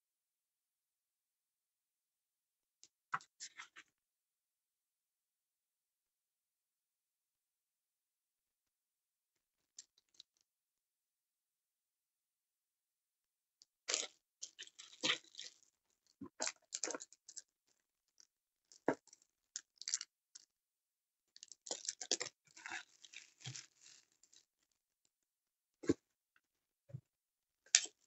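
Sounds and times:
plastic wrapping crinkling: 0:22.8 - 0:24.1.

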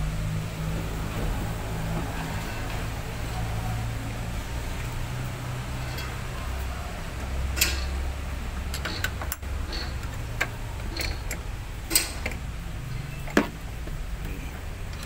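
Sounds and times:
fittings clicking and tapping: 0:07.2 - 0:08.0, 0:08.7 - 0:14.0.

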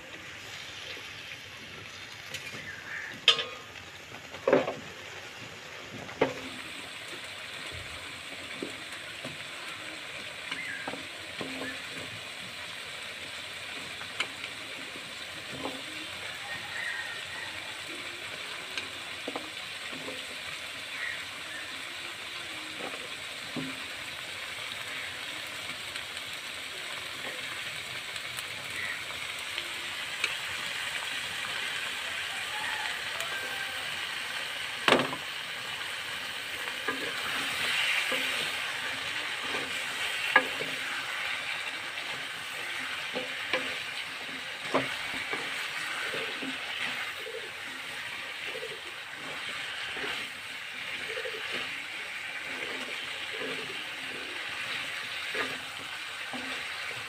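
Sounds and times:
cauliflower sizzling in a wok: 0:00.0 - 0:57.0
wooden spatula scraping a pan: 0:36.3 - 0:57.0.

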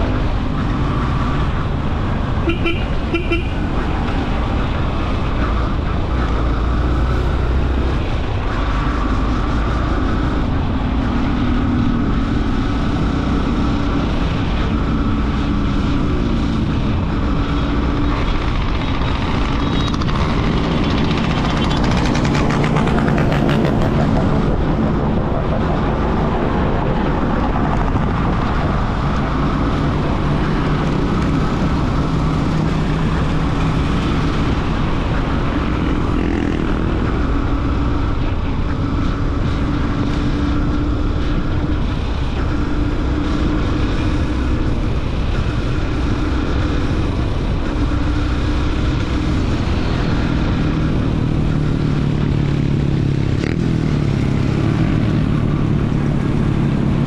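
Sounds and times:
motorcycle engine running: 0:00.0 - 0:25.7
wind rushing over microphone: 0:00.0 - 0:57.0.

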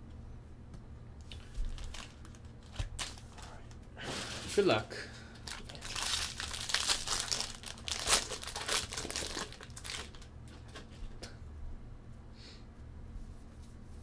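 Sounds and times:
foil wrapper crinkling and tearing: 0:01.3 - 0:04.8, 0:05.4 - 0:10.3.

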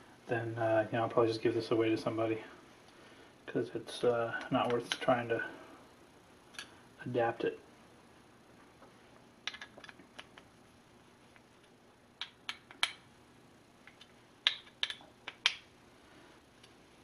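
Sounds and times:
sharp metal clicks and taps: 0:12.2 - 0:13.0, 0:13.8 - 0:15.6.

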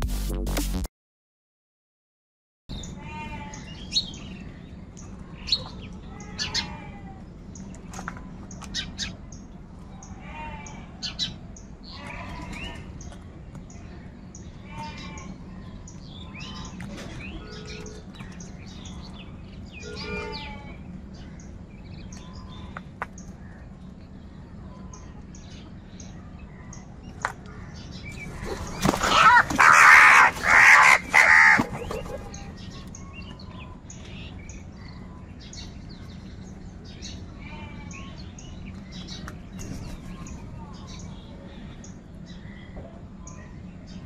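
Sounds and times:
crows cawing: 0:28.8 - 0:31.9.

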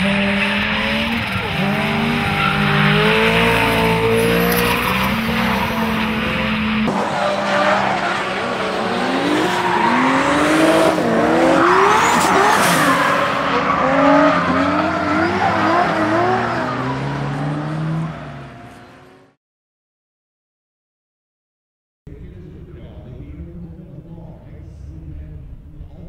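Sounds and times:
car engine revving: 0:00.0 - 0:19.4.

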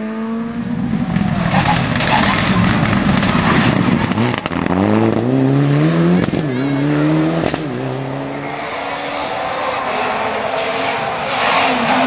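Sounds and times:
rally car engine accelerating: 0:00.0 - 0:12.0.

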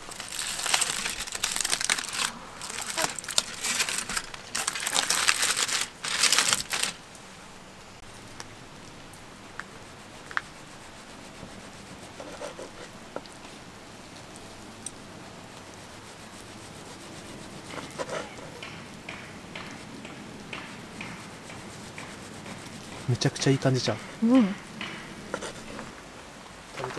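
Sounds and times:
aluminium foil crinkling: 0:00.0 - 0:07.2.

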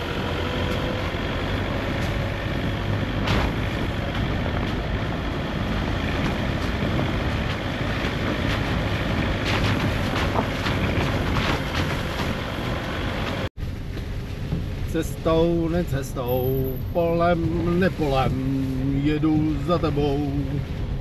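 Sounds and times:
car engine and road noise: 0:00.0 - 0:21.0
rattles: 0:05.9 - 0:13.4.

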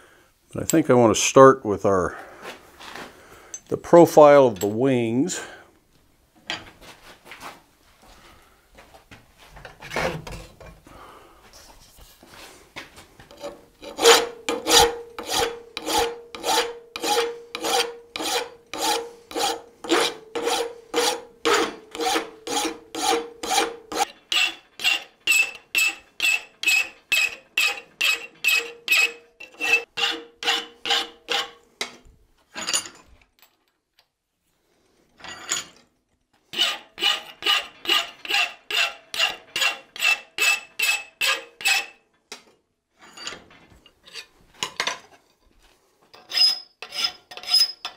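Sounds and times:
hand file filing steel: 0:13.3 - 0:31.6, 0:36.5 - 0:42.0.

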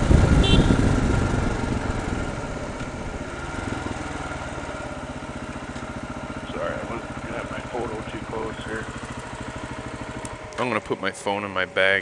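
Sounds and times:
wind rush: 0:00.0 - 0:03.2
motorcycle engine running: 0:00.0 - 0:12.0.

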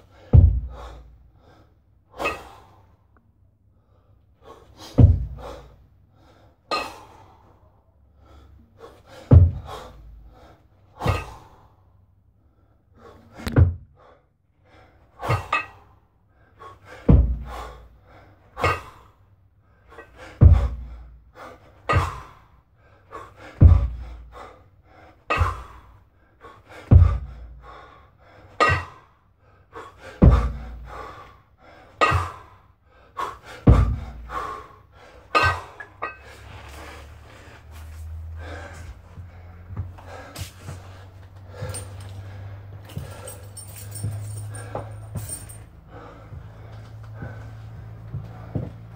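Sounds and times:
man breathing hard: 0:00.0 - 0:48.9
kettlebell thud: 0:00.3 - 0:00.9, 0:05.0 - 0:05.6, 0:09.3 - 0:10.1, 0:13.4 - 0:14.0, 0:17.1 - 0:17.6, 0:20.4 - 0:20.9, 0:23.6 - 0:24.0, 0:26.9 - 0:27.3, 0:28.6 - 0:29.0, 0:30.2 - 0:30.9, 0:33.6 - 0:34.5.

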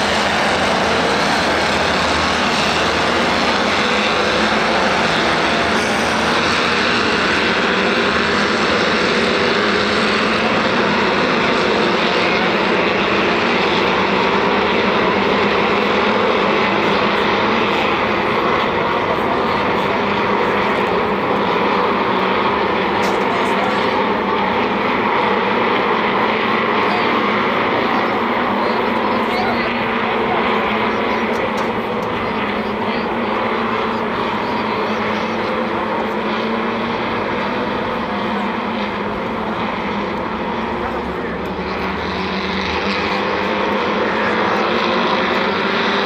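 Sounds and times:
race car engines droning: 0:00.0 - 0:46.0.

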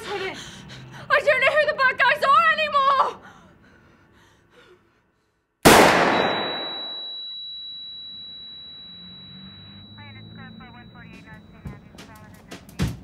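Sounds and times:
handgun shot with echo: 0:05.7 - 0:07.0
high-pitched ringing tone: 0:06.2 - 0:12.4.

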